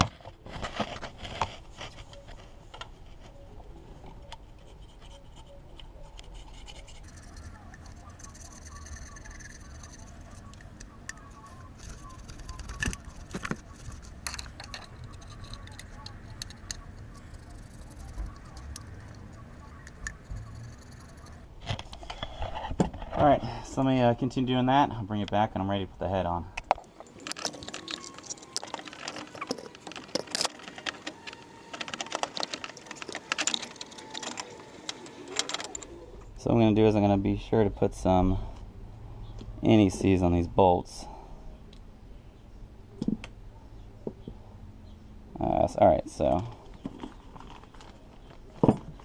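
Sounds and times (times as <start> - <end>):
scraper scraping metal: 6.2 - 21.5, 27.0 - 36.1
sharp metallic clicks and taps: 7.0 - 21.4.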